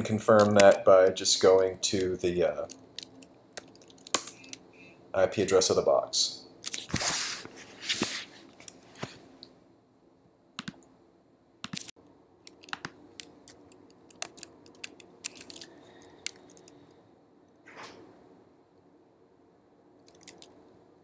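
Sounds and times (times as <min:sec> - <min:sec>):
keyboard and mouse clicks: 0:10.6 - 0:10.9, 0:11.6 - 0:15.6, 0:20.0 - 0:20.6.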